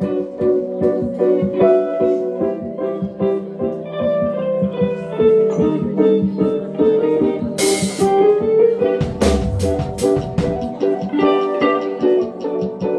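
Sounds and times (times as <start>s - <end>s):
electric guitars picking melody: 0.0s - 12.9s
keyboard: 0.0s - 12.9s
steady drum beat: 7.4s - 8.3s, 9.0s - 12.9s.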